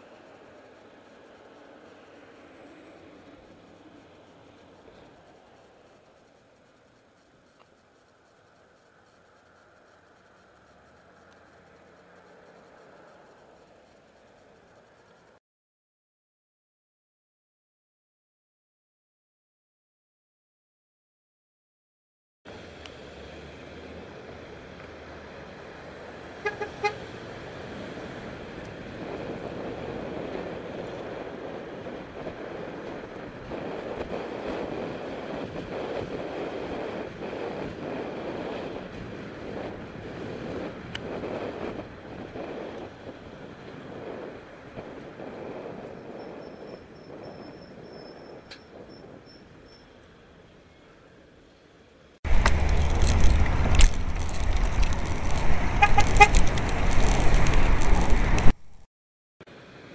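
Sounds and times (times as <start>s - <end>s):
traffic rumble: 0.0s - 15.4s, 22.5s - 58.9s
horn short toots: 26.4s - 27.0s
wind buffeting microphone: 27.3s - 49.6s, 52.3s - 58.6s.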